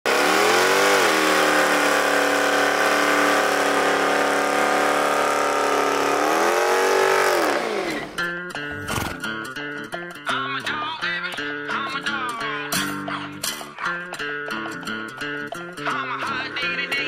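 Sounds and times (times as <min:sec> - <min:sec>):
car engine revving high: 0:00.0 - 0:08.2.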